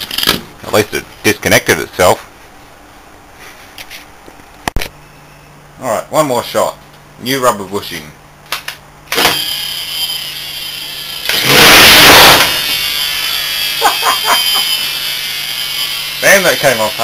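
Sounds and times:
electric motor whining: 9.2s - 17.0s
loud harsh burst: 10.9s - 17.0s.

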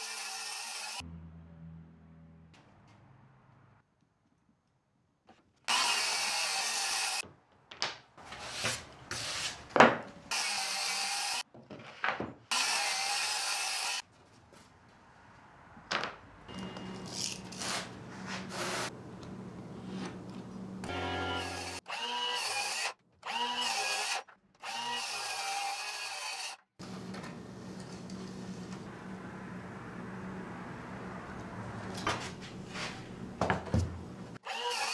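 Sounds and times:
power tool working wood: 20.8s - 26.5s.

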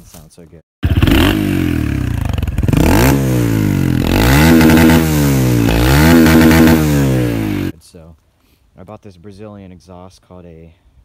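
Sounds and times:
dirt bike engine revving: 0.8s - 7.7s.

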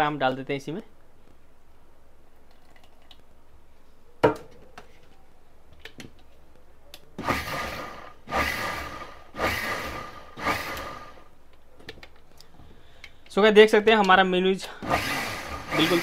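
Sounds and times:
mixer grinder whirring in pulses: 7.2s - 11.3s, 14.8s - 16.0s.

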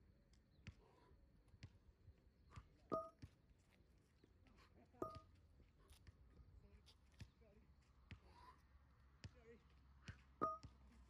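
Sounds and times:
dumbbells clanking on asphalt: 2.6s - 3.4s, 4.9s - 5.4s, 10.0s - 11.0s.

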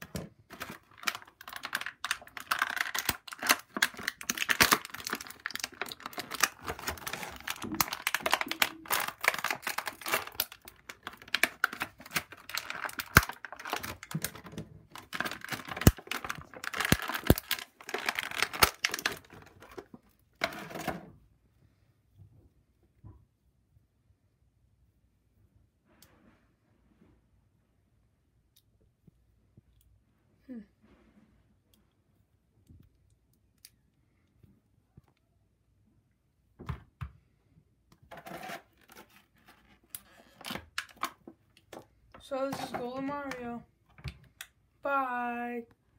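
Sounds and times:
plastic tray crinkling: 0.0s - 21.0s
plastic package clicks: 0.5s - 19.8s.

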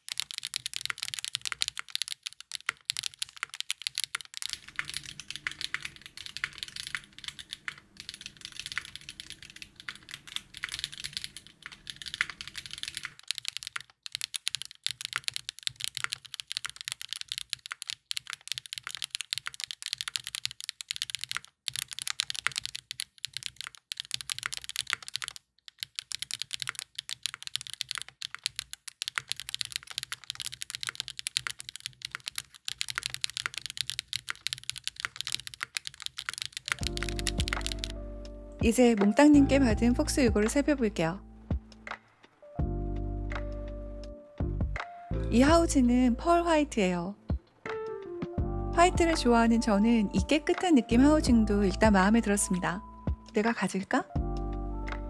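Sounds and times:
typing on mechanical keyboard: 0.0s - 38.0s, 38.6s - 39.4s.

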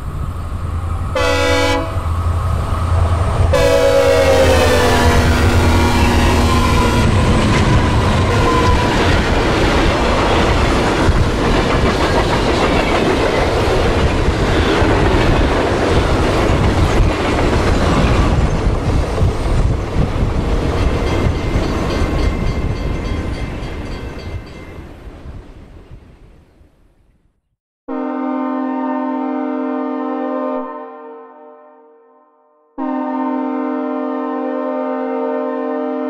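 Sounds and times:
train rumble and clickety-clack: 0.0s - 26.1s
locomotive air horn: 1.1s - 2.2s, 3.5s - 7.2s, 8.2s - 9.4s, 27.9s - 32.0s, 32.8s - 36.0s.

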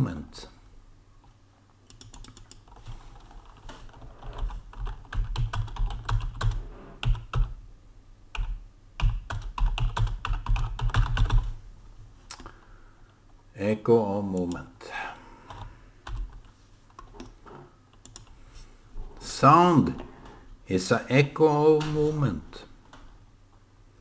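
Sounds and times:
typing on computer keyboard: 1.9s - 7.6s, 8.4s - 11.5s, 15.5s - 17.3s, 17.9s - 18.3s.

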